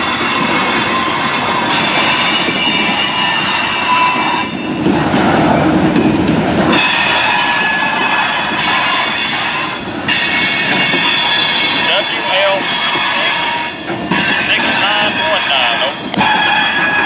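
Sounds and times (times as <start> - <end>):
high wheel squeal: 0.0 - 4.7, 6.7 - 17.0
freight train wheels clattering: 0.0 - 17.0.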